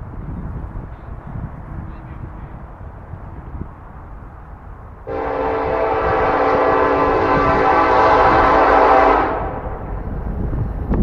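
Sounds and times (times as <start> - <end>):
locomotive air horn blast: 5.1 - 9.9.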